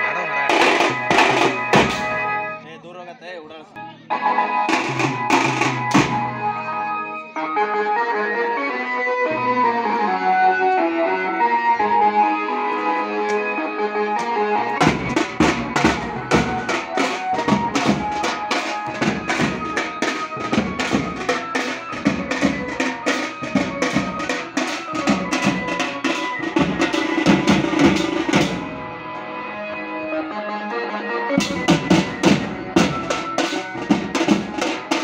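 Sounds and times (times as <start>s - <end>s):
drums fast steady beat: 0.5s - 2.3s, 4.7s - 6.3s, 14.8s - 28.8s, 31.4s - 35.0s.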